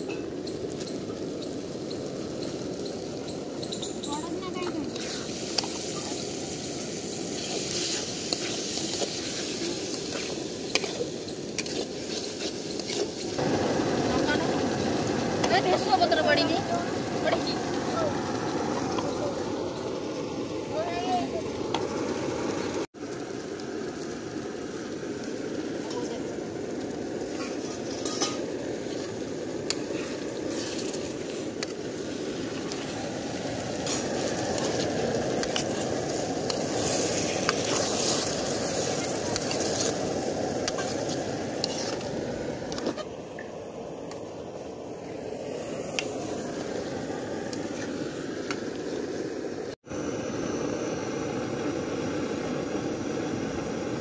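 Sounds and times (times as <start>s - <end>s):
curry sizzling in a pan: 0.0s - 49.8s
metal spatula scraping a pan: 27.4s - 28.4s, 40.6s - 42.0s.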